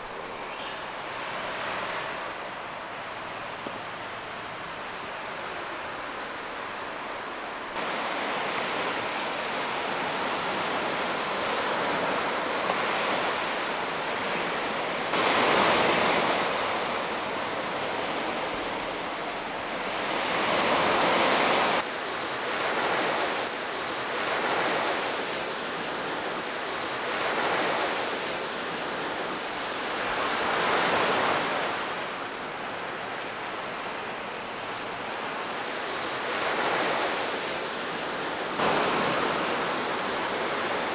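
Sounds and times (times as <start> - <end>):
waves washing up a pebbly beach: 7.8 - 31.8.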